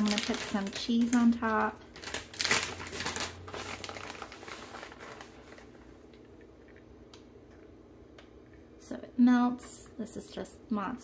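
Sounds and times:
plastic bag rustling: 0.0s - 6.2s.

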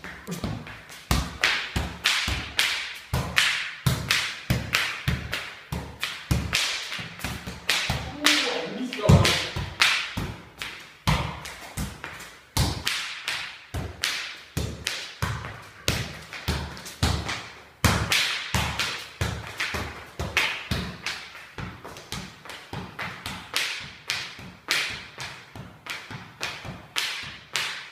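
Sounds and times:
football thuds: 0.0s - 8.2s, 9.0s - 12.9s.

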